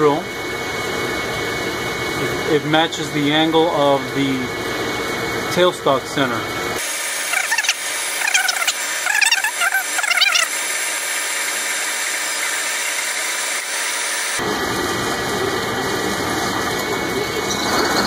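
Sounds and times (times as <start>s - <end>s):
rough machine noise: 1.3s - 18.0s
hiss of cutting and coolant: 5.8s - 18.0s
drill squealing: 6.8s - 14.4s, 17.2s - 18.0s.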